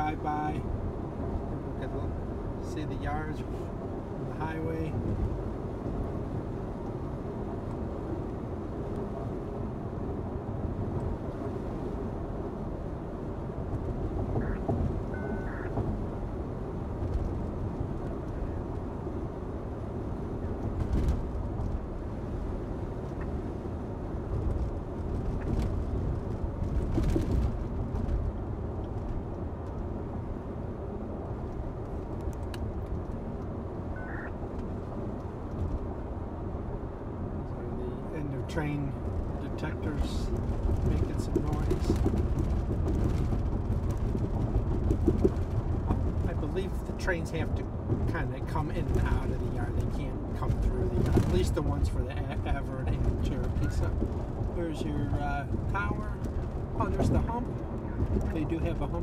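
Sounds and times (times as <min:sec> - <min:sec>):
road and engine rumble in car: 0:00.0 - 0:59.0
faint short beeps: 0:15.2 - 0:15.7.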